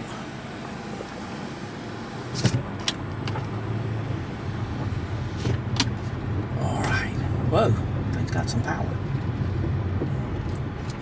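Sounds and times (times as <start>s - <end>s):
power windows closing: 0.0s - 6.0s
car engine and road noise: 0.0s - 11.0s.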